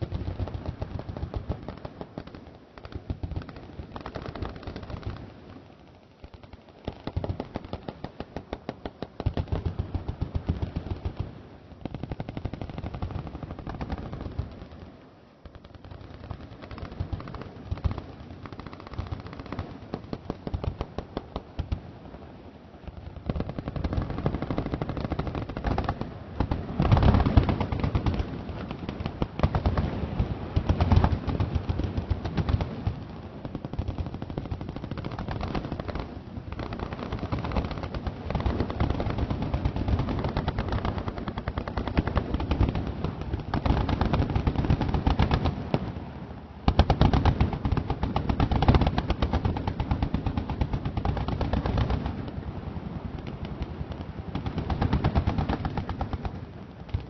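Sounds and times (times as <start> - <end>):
machine guns firing: 23.2 - 45.7, 46.7 - 52.2, 54.3 - 56.4.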